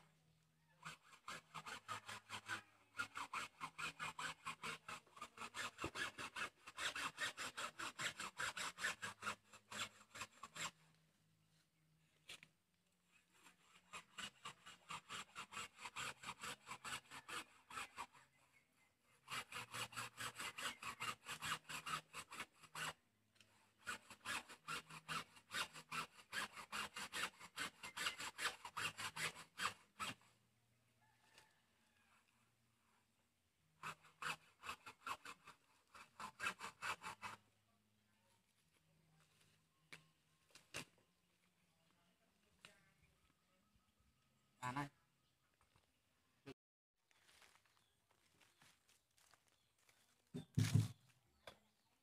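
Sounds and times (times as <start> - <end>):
hacksaw cutting bamboo: 0.8 - 10.9, 13.1 - 18.4, 19.1 - 30.3, 33.8 - 37.4, 50.4 - 51.0.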